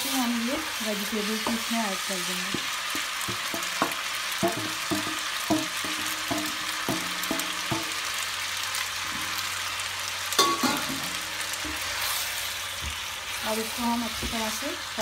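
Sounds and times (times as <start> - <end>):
food sizzling in a wok: 0.0 - 15.0
wooden spatula knocking on pan: 1.4 - 1.8, 2.4 - 8.1.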